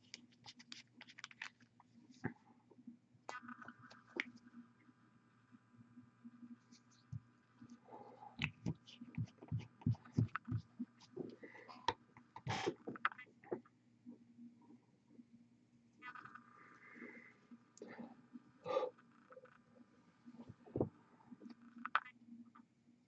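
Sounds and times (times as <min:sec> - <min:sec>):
low electrical hum: 0:00.0 - 0:23.0
hands tapping and clicking objects: 0:08.4 - 0:11.2.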